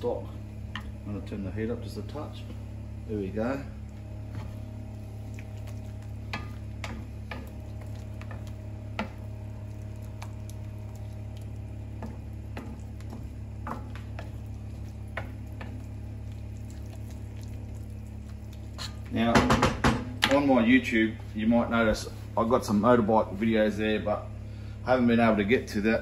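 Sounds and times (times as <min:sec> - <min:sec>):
light sizzle: 0:00.0 - 0:19.2
steady low hum: 0:00.0 - 0:26.0.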